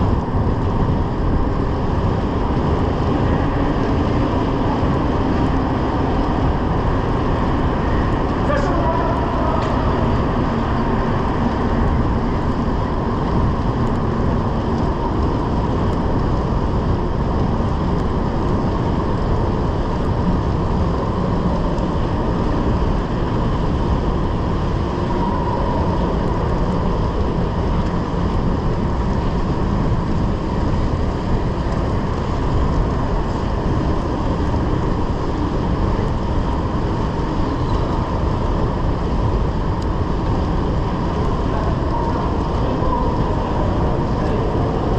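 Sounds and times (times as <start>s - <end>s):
bike tyres rolling on asphalt: 0.0s - 44.9s
faint steady whine: 0.0s - 44.9s
wind on microphone: 0.0s - 44.9s.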